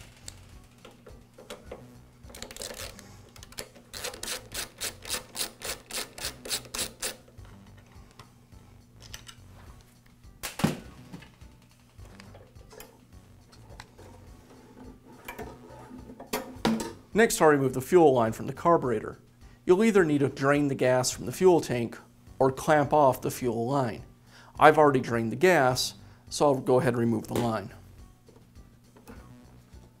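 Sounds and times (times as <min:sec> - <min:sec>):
screwdriver clicking: 0:02.3 - 0:07.2.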